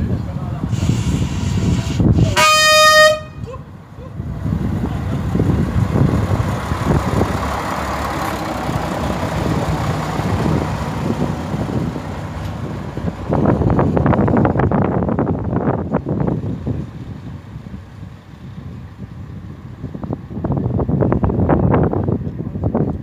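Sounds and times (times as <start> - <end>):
wind noise on microphone: 0.0 - 23.0
train horn toot: 2.3 - 3.5
low rumble: 3.2 - 23.0.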